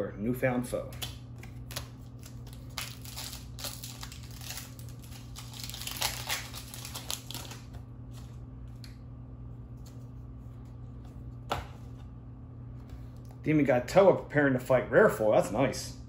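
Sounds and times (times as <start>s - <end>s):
foil wrapper crinkling and tearing: 1.4s - 7.8s.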